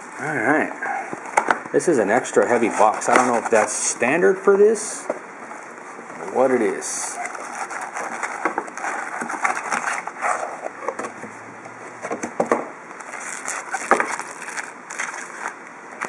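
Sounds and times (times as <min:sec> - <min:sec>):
foil packs crinkling: 0:02.1 - 0:04.0, 0:06.3 - 0:10.8, 0:12.9 - 0:16.0
cardboard knocks and scrapes: 0:13.8 - 0:14.2.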